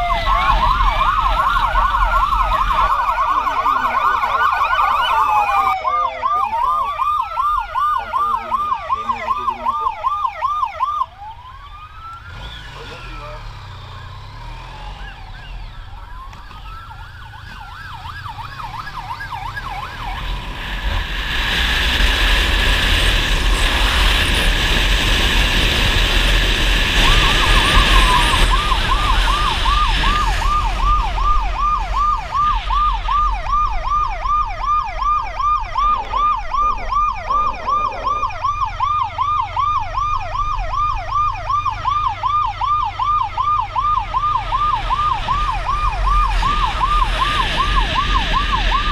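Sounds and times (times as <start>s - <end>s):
siren wailing and yelping: 0.0s - 20.6s, 22.1s - 48.9s
motorcycle engine: 11.1s - 48.9s.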